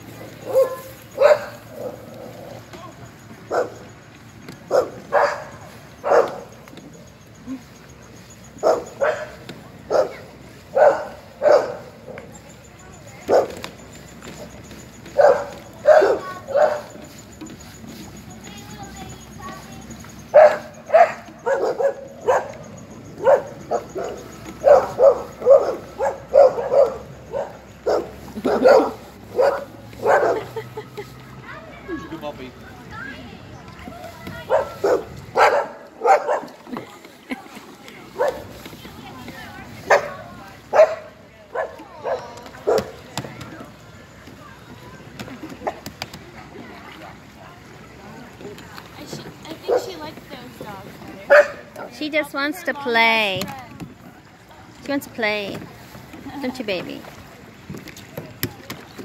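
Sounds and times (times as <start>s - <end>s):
dog barking: 0.4s - 2.1s, 3.5s - 3.9s, 4.7s - 6.6s, 8.6s - 12.2s, 13.3s - 13.6s, 15.2s - 17.0s, 20.3s - 22.6s, 23.2s - 30.6s, 34.4s - 36.6s, 38.2s - 38.4s, 39.9s - 43.0s, 51.3s - 51.9s.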